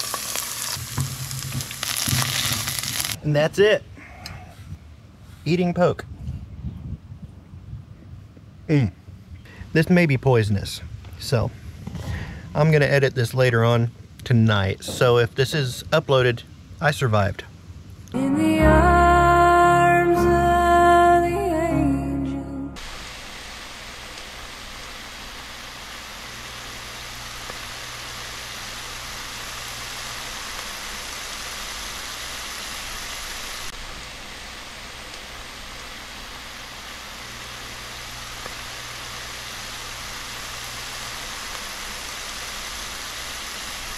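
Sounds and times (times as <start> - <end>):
greens sizzling in grease: 0.0 - 3.2, 22.8 - 43.9.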